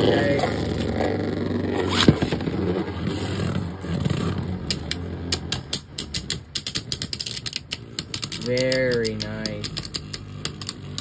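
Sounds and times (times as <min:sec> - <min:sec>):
clicking and rattling of plastic parts: 0:01.9 - 0:11.0.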